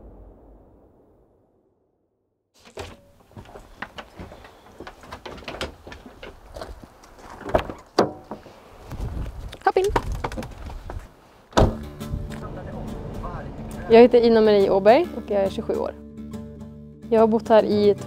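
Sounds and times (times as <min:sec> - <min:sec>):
wooden door clattering: 0:02.6 - 0:06.4, 0:07.3 - 0:08.4
dog's paws on wooden porch: 0:02.6 - 0:11.2
footsteps on wooden porch: 0:02.6 - 0:12.4
loud thunk: 0:11.6 - 0:11.9
background music: 0:11.6 - 0:18.0.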